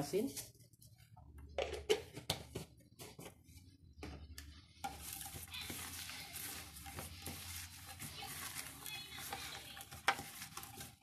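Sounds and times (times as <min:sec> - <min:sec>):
hand rubbing gourd in plastic bowl: 0:04.8 - 0:11.0.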